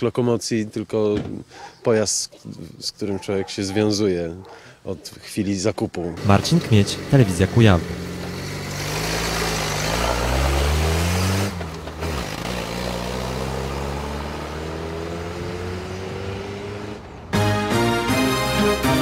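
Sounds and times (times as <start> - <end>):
car engine revving: 6.2 - 17.4.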